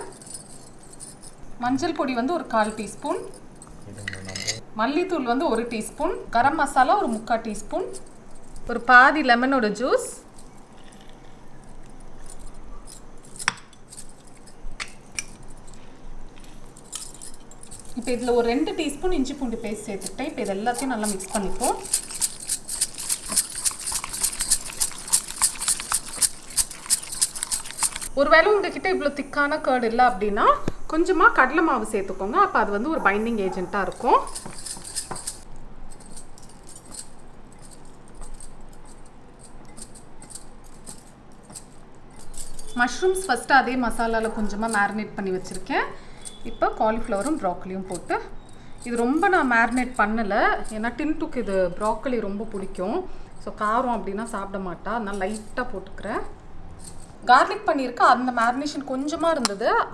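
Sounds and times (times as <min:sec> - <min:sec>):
bangles jingling: 0:00.0 - 0:04.6, 0:05.3 - 0:28.4, 0:31.0 - 0:59.8
vegetables clinking on steel plate: 0:16.8 - 0:28.1.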